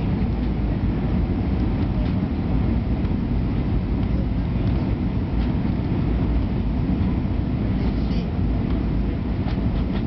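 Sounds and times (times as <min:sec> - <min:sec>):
jet engines rumbling: 0:00.0 - 0:10.0.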